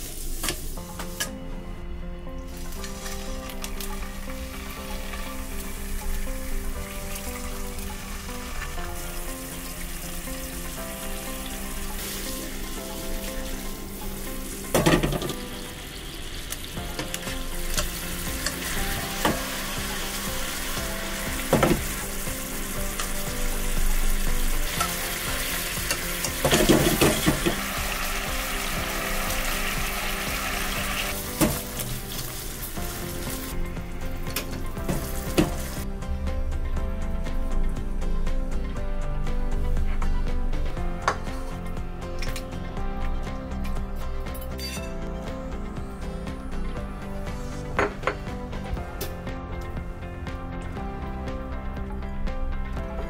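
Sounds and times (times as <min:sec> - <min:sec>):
pork sizzling in a frying pan: 0:00.0 - 0:01.3, 0:02.5 - 0:33.6, 0:34.2 - 0:35.8
knocks in a pan: 0:14.7 - 0:15.4.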